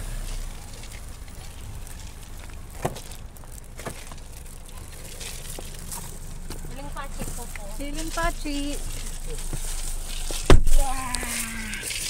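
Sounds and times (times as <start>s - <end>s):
low street noise rumble: 0.0s - 12.0s.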